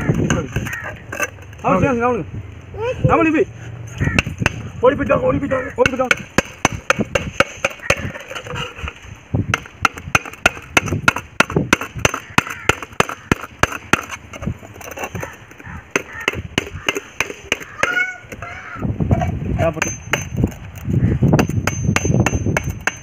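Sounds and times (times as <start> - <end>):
hammer striking knife into tin can: 5.8 - 8.6, 19.8 - 20.5, 21.4 - 23.0.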